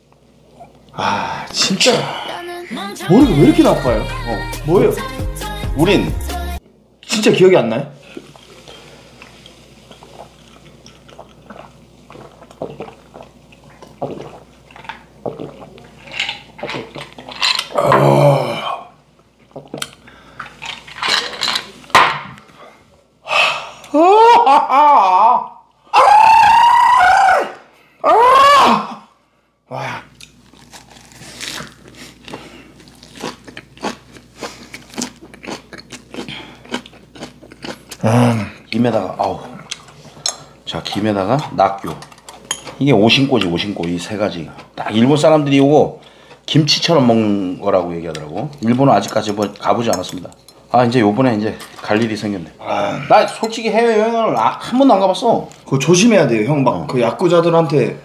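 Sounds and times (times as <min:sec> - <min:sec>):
man chewing crunchy lettuce: 0:08.2 - 0:17.7, 0:30.1 - 0:40.3
people swallowing drinks: 0:10.0 - 0:18.8
loud voiced exhale: 0:23.2 - 0:24.0.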